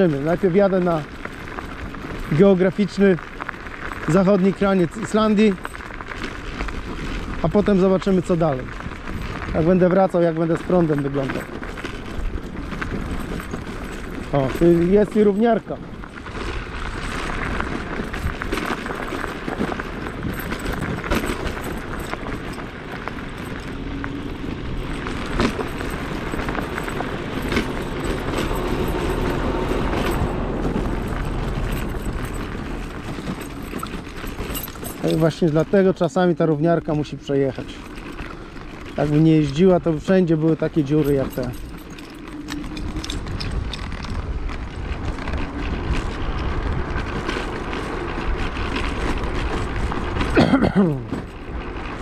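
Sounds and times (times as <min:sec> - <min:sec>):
low rumble of riding: 0:00.0 - 0:52.0
rattles: 0:00.0 - 0:52.0
sharp knocks over potholes: 0:00.0 - 0:52.0
tyre and wind noise: 0:00.0 - 0:52.0.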